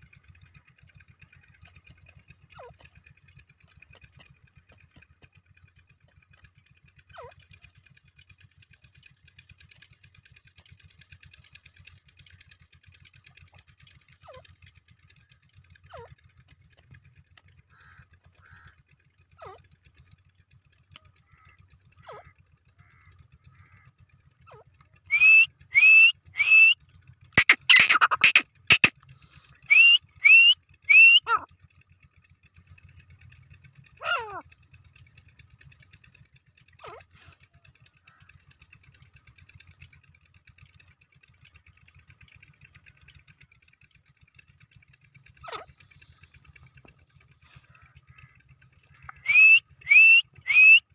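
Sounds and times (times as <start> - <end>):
faint bird chirps and whistles: 24.5 - 26.8, 27.4 - 28.9, 29.6 - 31.5, 48.8 - 50.9
francolin calling loudly: 25.1 - 26.8, 27.4 - 28.9, 29.7 - 31.5, 48.9 - 50.8.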